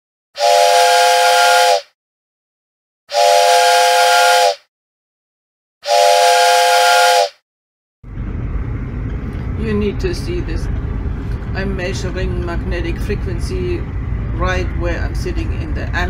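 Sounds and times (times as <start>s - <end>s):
train whistle blasts: 0.4s - 2.0s, 3.1s - 4.7s, 5.8s - 7.4s.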